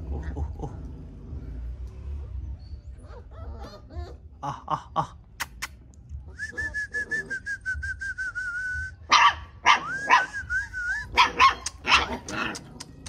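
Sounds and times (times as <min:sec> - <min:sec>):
puppies whining: 0:01.3 - 0:04.4, 0:09.7 - 0:13.0
puppies yapping: 0:02.0 - 0:04.4, 0:09.1 - 0:13.0.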